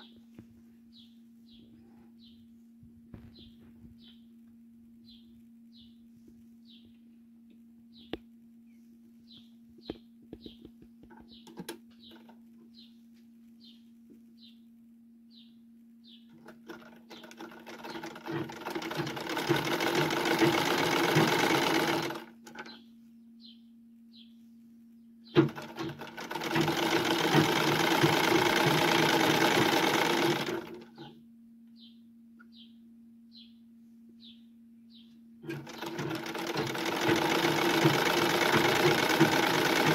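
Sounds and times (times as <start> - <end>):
low hum: 0.0 - 36.2
sewing machine stitching: 16.4 - 22.7, 25.4 - 31.1, 35.5 - 39.9.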